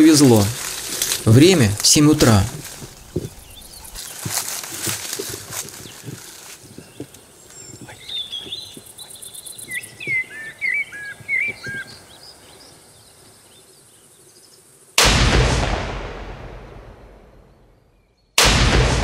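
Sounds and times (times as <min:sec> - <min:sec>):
birds chirping: 0:00.0 - 0:14.8
faint outdoor background noise: 0:00.0 - 0:15.0.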